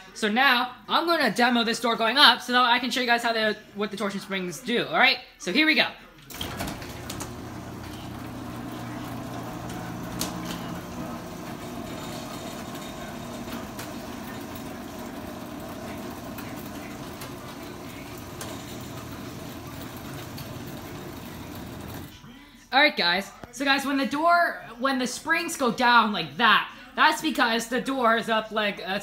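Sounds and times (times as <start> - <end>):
garage door opener motor hum: 6.3 - 22.1.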